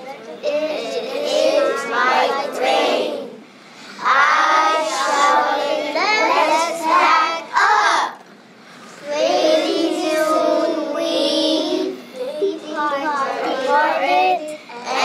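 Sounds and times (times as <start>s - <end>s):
children reading aloud in unison: 0.0s - 8.3s, 8.9s - 15.0s.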